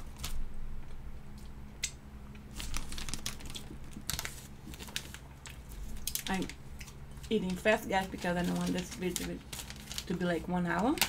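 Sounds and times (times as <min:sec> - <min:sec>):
plastic bag crinkling: 0:02.5 - 0:11.0.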